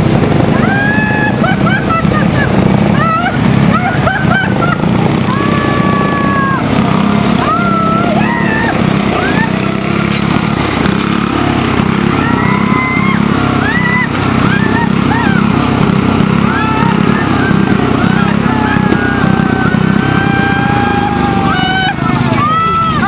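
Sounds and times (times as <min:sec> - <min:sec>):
lawn mower engine running: 0:00.0 - 0:23.0.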